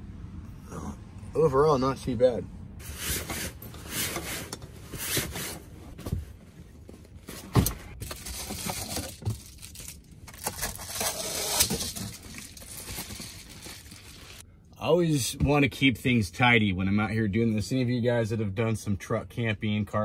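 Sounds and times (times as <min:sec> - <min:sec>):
bedding rustling and scraping: 0:02.8 - 0:14.4.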